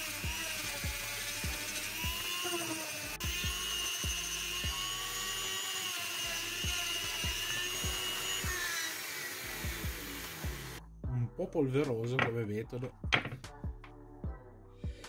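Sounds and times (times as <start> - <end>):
rotary tool whining: 0.0 - 10.8.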